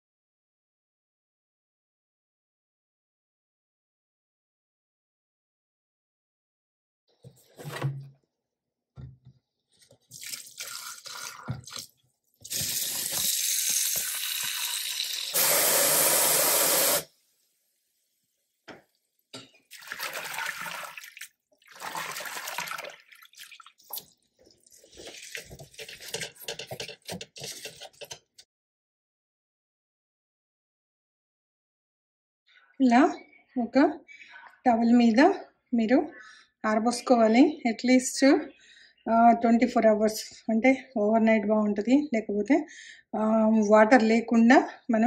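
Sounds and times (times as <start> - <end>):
water splashing and dripping: 18.6 - 26.4.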